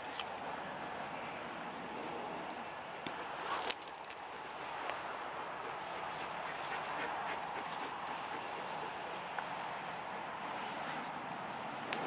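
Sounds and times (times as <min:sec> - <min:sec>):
faint rustle: 0:03.4 - 0:12.0
dog collar tags jingling: 0:03.5 - 0:04.3, 0:06.6 - 0:08.9.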